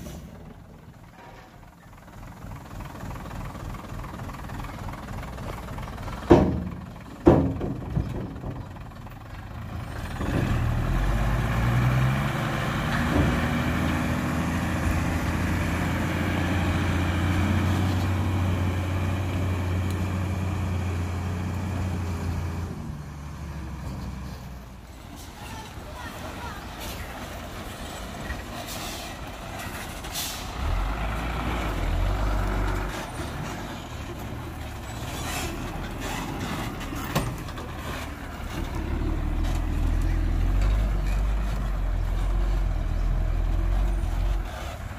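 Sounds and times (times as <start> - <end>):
diesel truck engine running: 0.0 - 44.9
loud knocks: 6.3 - 8.6.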